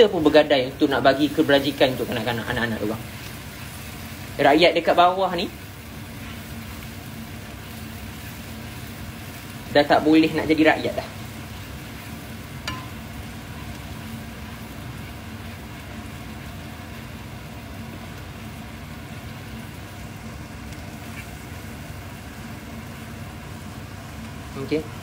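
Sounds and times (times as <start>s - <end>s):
low steady hum: 0.0s - 25.0s
sambal frying in a pan: 0.0s - 25.0s.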